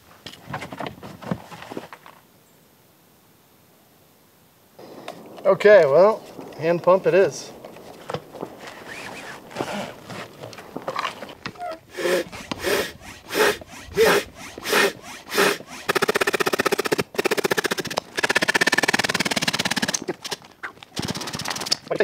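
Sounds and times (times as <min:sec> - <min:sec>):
fast even rasping: 0:05.7 - 0:22.0
hand air pump whooshing: 0:07.8 - 0:20.4.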